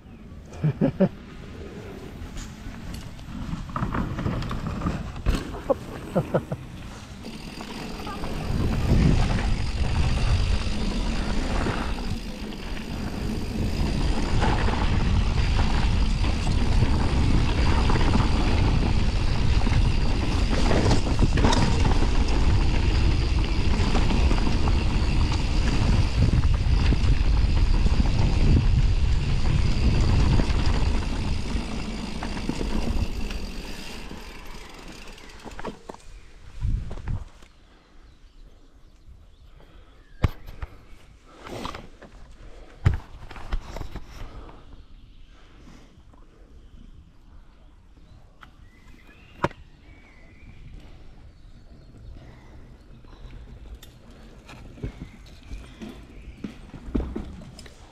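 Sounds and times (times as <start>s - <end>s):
bike tyres on dirt: 0.1s - 57.9s
bike chain and frame rattling: 2.2s - 36.2s
wind on microphone: 8.1s - 33.3s.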